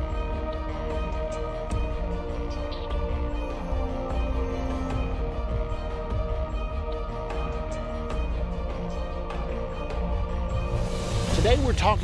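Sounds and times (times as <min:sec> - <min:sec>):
theme music with heavy bass: 0:00.0 - 0:12.0.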